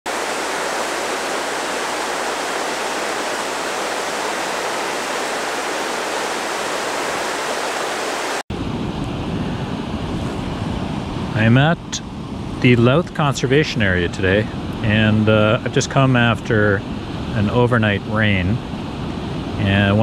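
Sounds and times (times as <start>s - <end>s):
water rushing over waterfall: 0.1s - 8.4s.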